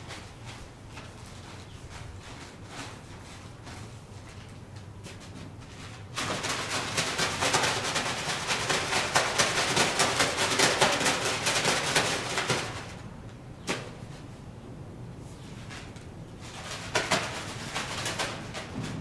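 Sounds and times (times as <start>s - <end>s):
plastic bag rustling: 0.0s - 9.8s.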